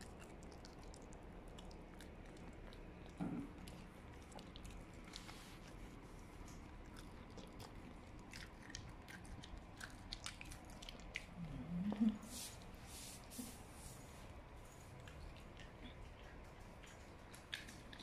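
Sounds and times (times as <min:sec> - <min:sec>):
dog teeth crunching chew: 0:00.0 - 0:11.6, 0:14.7 - 0:18.0
dog low vocal sound: 0:11.3 - 0:12.4.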